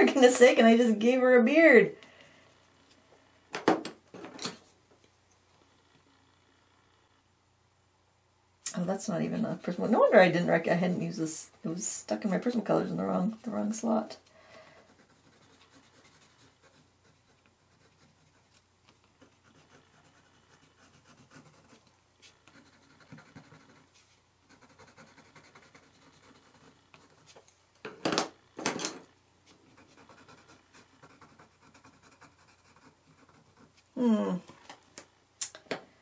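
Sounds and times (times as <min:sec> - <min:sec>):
pencil scratching on paper: 0:09.2 - 0:14.0, 0:14.8 - 0:27.5, 0:29.5 - 0:33.9.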